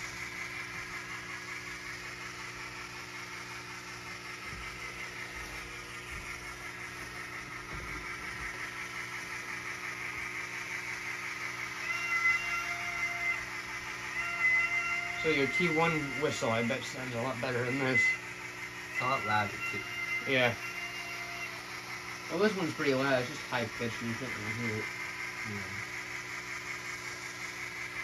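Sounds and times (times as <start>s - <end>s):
model train running sounds: 0.0s - 28.0s
high-pitched train whistle chord: 11.8s - 18.3s, 18.9s - 23.3s.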